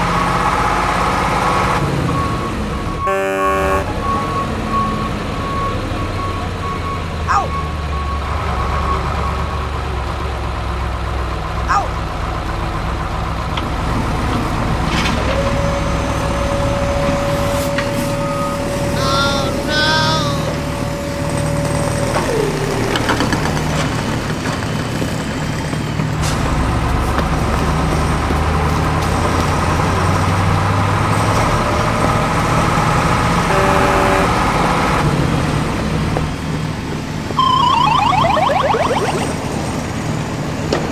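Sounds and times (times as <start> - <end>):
long held tone: 37.4 - 39.5.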